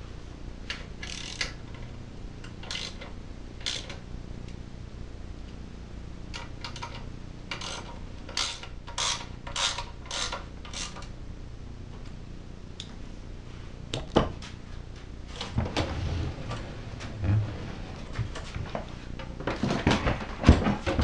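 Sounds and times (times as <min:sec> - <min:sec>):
ratchet wrench clicking: 0:01.0 - 0:01.6, 0:02.6 - 0:04.0, 0:07.6 - 0:11.0.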